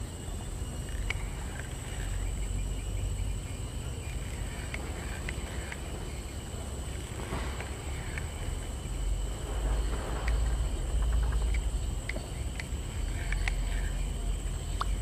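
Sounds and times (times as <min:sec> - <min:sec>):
insects droning: 0:00.0 - 0:15.0
low rumble: 0:00.0 - 0:15.0
faint clicks: 0:00.8 - 0:02.4, 0:04.1 - 0:06.3, 0:06.9 - 0:09.0, 0:09.9 - 0:15.0.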